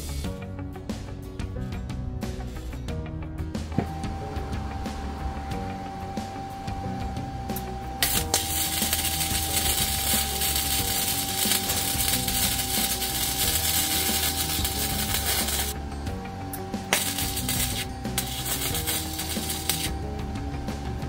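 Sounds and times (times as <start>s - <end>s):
welding arc crackling: 3.8s - 21.0s.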